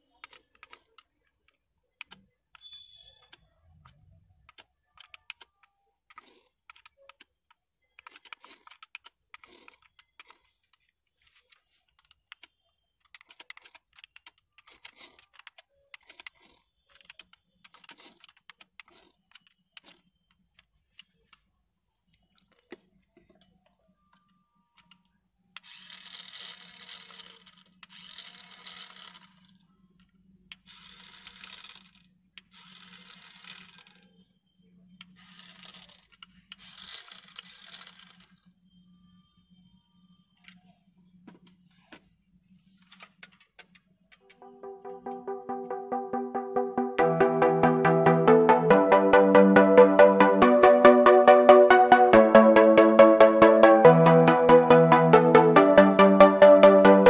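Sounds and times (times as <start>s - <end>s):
toy car motor whirring: 2.5s - 20.1s, 25.6s - 29.7s, 30.5s - 34.3s, 35.0s - 38.5s.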